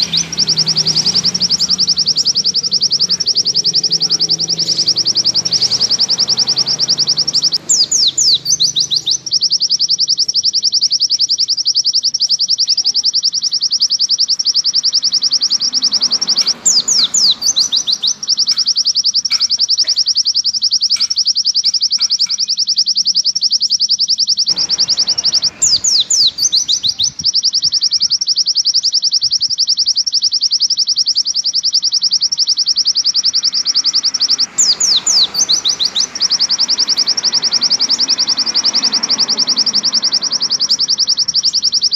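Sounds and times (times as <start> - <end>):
bird trilling: 0.0 - 41.9
quick sweeping bird notes: 24.5 - 30.0.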